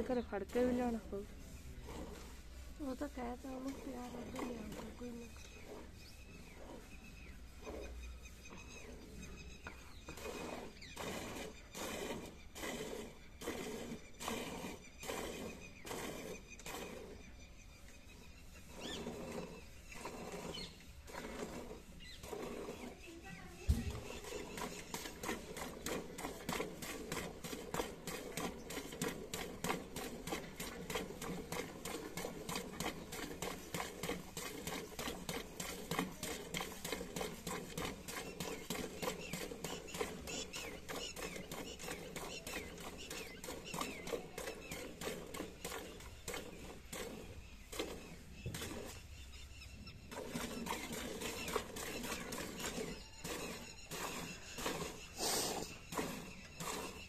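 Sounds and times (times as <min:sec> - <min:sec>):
milk squirting into a pail: 0:09.9 - 0:17.3, 0:18.5 - 0:49.3, 0:50.0 - 0:57.0.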